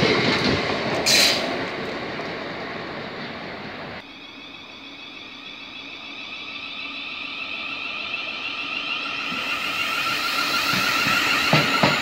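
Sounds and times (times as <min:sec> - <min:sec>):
electric train whine: 0:00.0 - 0:12.0.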